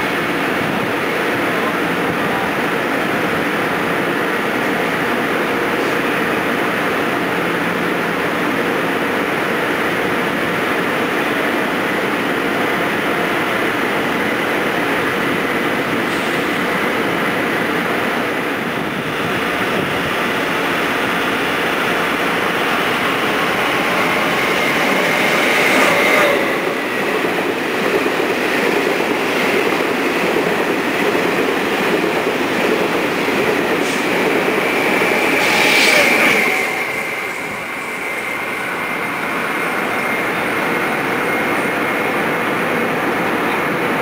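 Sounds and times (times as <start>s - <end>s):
train wheels rushing on rail: 0.0s - 44.0s.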